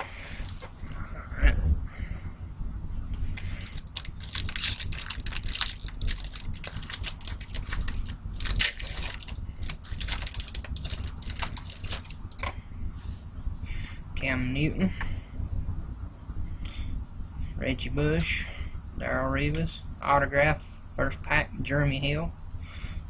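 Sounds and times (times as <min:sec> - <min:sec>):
foil wrapper crinkling: 0:03.4 - 0:12.5.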